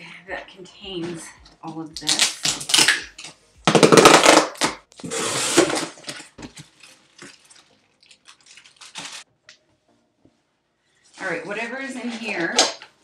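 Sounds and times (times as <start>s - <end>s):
packaging rustling: 4.0s - 9.3s.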